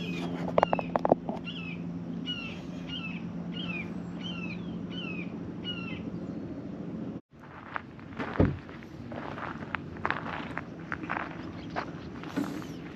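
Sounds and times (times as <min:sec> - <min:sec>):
steady low hum: 0:00.0 - 0:12.9
songbird chirping: 0:11.1 - 0:12.9.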